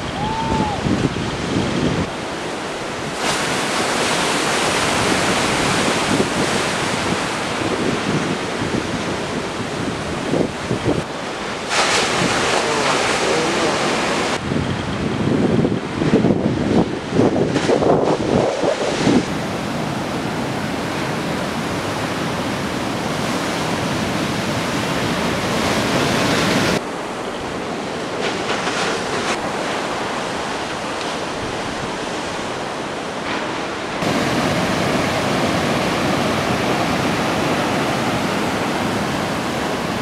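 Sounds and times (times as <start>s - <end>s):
steady rushing noise: 10.3s - 40.0s.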